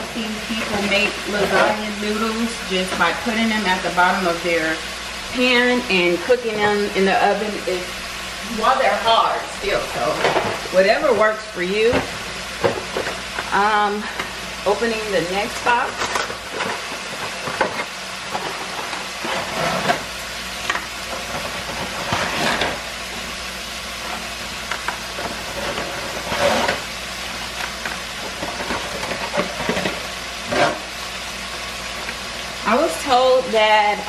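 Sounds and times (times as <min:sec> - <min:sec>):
meat sizzling in a pan: 0:00.0 - 0:34.0.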